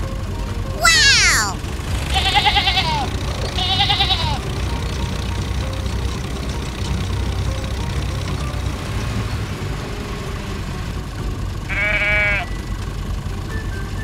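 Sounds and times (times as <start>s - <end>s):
truck engine rumble: 1.7s - 14.0s
sheep bleating: 2.2s - 4.4s, 11.7s - 12.5s.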